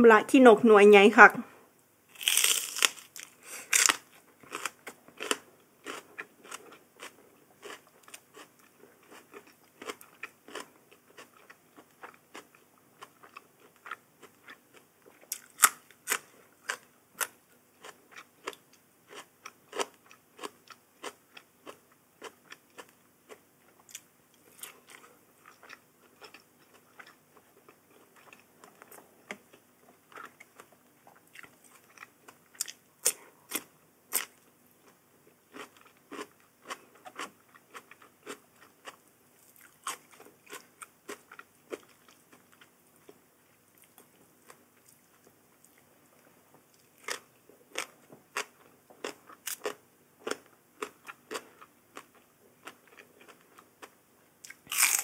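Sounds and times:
crunching raw vegetables: 0:02.1 - 0:27.2, 0:46.7 - 0:55.0.

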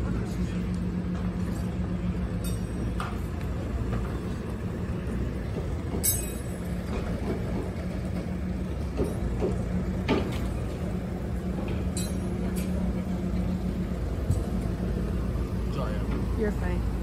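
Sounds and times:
machine engine humming: 0:00.0 - 0:17.0.

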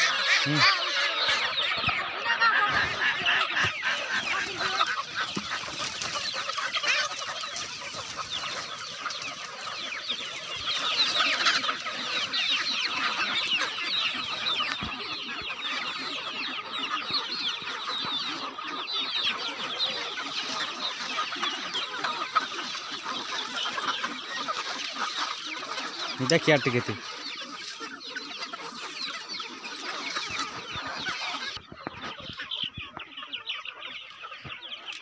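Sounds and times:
chickens clucking and chirping: 0:00.0 - 0:35.0.

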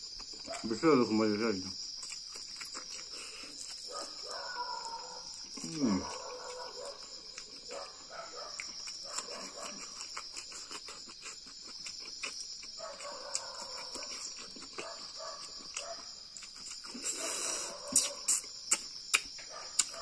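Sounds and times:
chewing and lip-smacking: 0:00.0 - 0:00.8, 0:01.8 - 0:20.0
insects chirring: 0:00.0 - 0:20.0.

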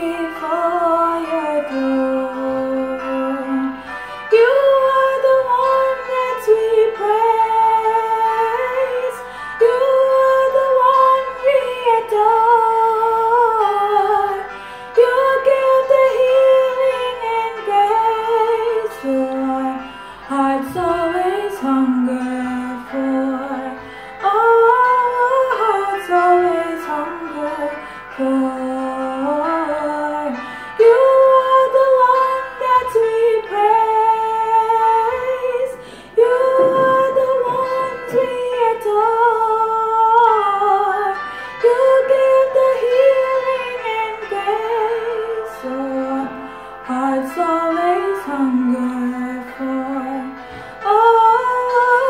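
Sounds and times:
woman singing worship song: 0:00.0 - 0:52.0
singer breathing: 0:03.7 - 0:04.3, 0:09.2 - 0:09.6, 0:14.5 - 0:15.0, 0:19.9 - 0:20.3, 0:23.8 - 0:24.2, 0:27.8 - 0:28.2, 0:30.4 - 0:30.8, 0:35.7 - 0:36.2, 0:50.4 - 0:50.8.

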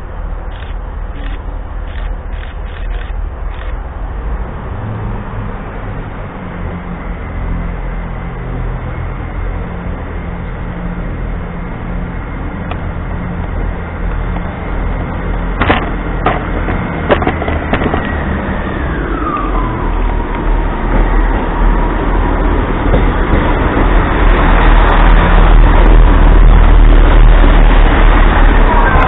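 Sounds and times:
train rumbling into a platform: 0:00.0 - 0:29.0
train whine sliding down: 0:00.0 - 0:29.0
sharp clicks: 0:00.5 - 0:03.8.

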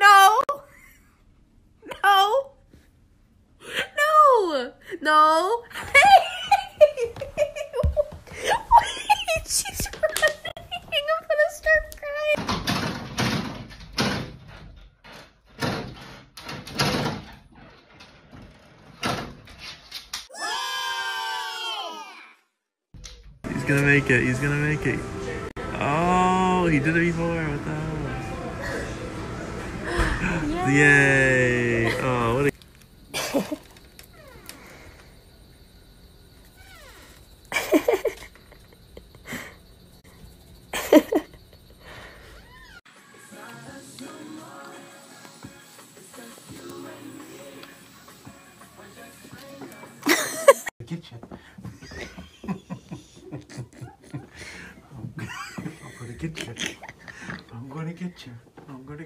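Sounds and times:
person laughing: 0:05.8 - 0:10.8, 0:37.5 - 0:39.6, 0:40.8 - 0:42.0, 0:50.0 - 0:50.7, 0:51.8 - 0:57.4.

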